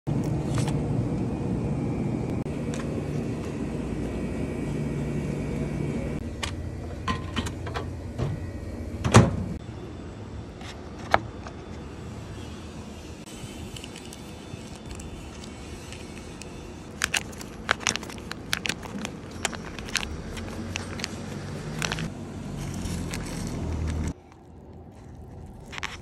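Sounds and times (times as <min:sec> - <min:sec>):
steady background hum: 0:00.1 - 0:26.0
plastic sachets crinkling: 0:13.4 - 0:26.0.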